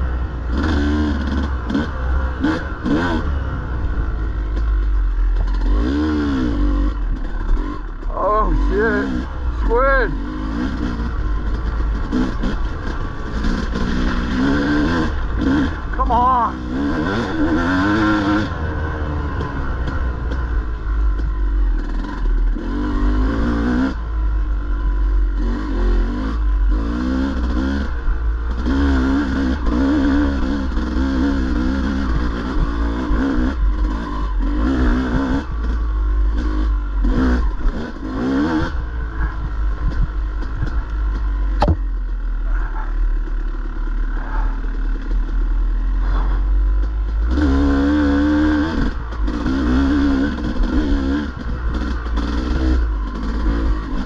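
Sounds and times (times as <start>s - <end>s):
dirt bike engine revving: 0.0s - 54.0s
sharp knock: 41.6s - 41.8s.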